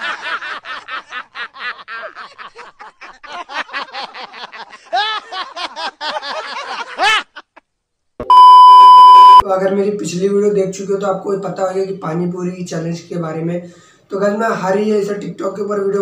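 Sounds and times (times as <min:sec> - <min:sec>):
man laughing hard: 0:00.0 - 0:07.6.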